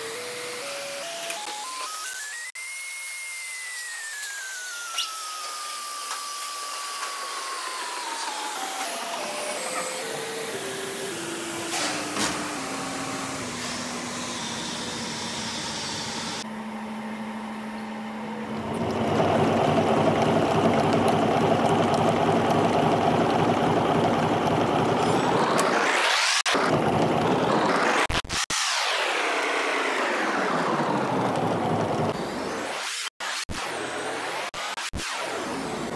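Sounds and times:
lathe whine slowing down: 5.6s - 32.8s
lathe machining noise: 6.0s - 16.4s, 18.3s - 28.2s.

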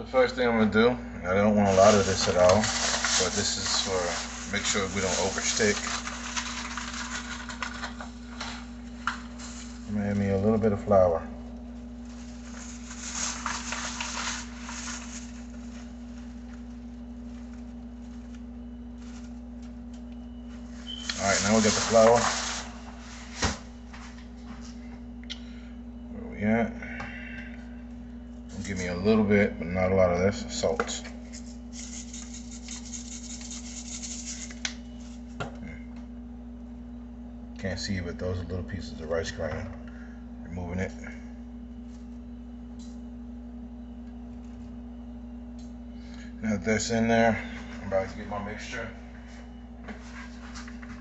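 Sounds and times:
steady low hum: 0.0s - 51.0s
hand rustling and patting paper: 1.6s - 10.4s, 11.7s - 19.8s, 20.5s - 24.7s, 31.3s - 35.3s
salt shaker rattling: 31.4s - 34.6s.

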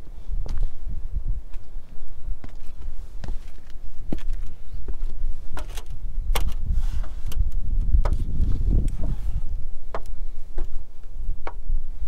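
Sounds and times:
wind buffeting microphone: 0.0s - 12.0s
clicks and scuffs on roof: 2.5s - 11.7s.

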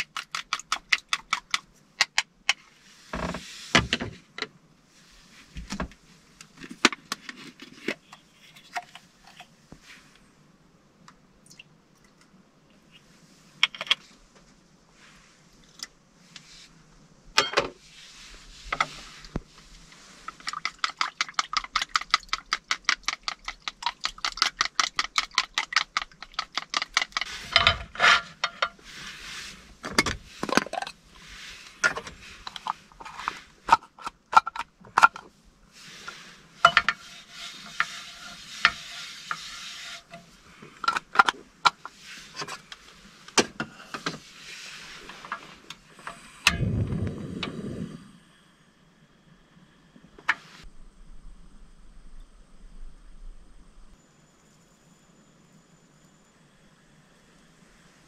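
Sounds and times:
chopsticks beating eggs in bowl: 20.3s - 27.3s.

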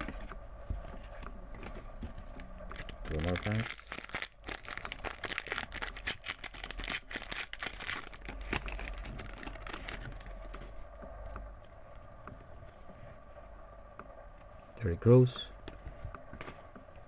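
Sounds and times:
foil wrapper tearing and crinkling: 2.7s - 10.6s.

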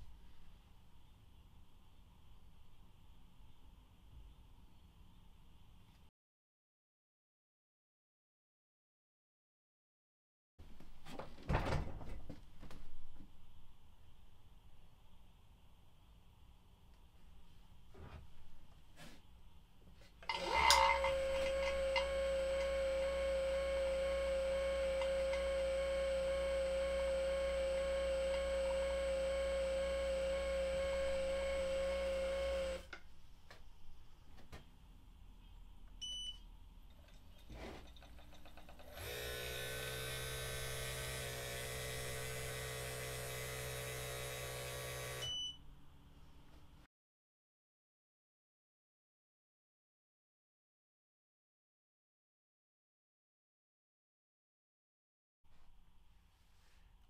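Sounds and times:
small vacuum pump running quietly: 20.3s - 32.8s, 38.8s - 45.5s
vacuum pump humming loudly: 20.3s - 32.8s, 38.9s - 45.4s
short beeps: 36.0s - 36.4s.

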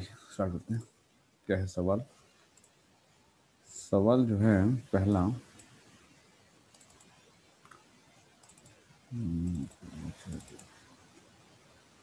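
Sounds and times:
computer mouse clicking: 2.5s - 2.8s, 5.4s - 8.9s, 9.5s - 11.4s
man murmuring: 9.1s - 10.4s.

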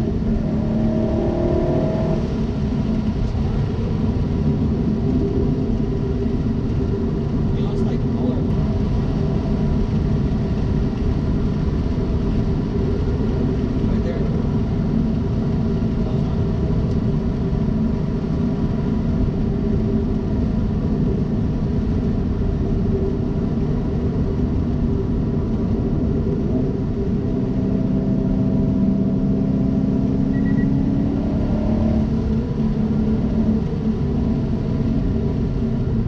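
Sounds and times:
car engine droning in cabin: 0.0s - 36.0s.

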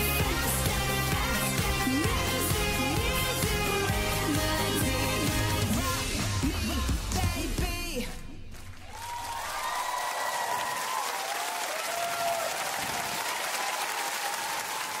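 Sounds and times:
audience applauding: 8.5s - 15.0s
high cheers: 8.8s - 15.0s.

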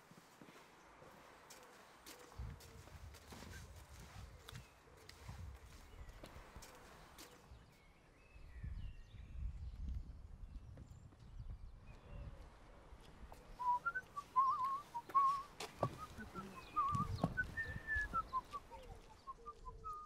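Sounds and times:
person whistling a tune: 13.6s - 18.6s.

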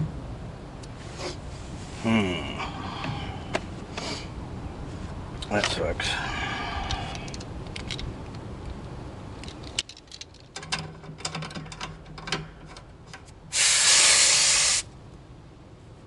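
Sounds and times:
refrigerant hissing: 13.5s - 14.9s.

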